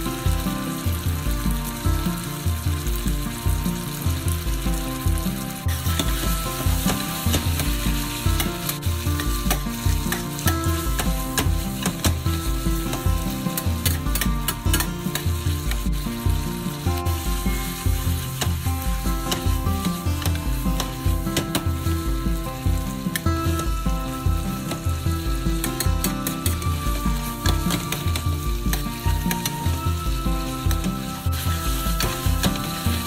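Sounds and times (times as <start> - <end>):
food sizzling in a frying pan: 0.0 - 33.0
music with bass beat: 0.0 - 33.0.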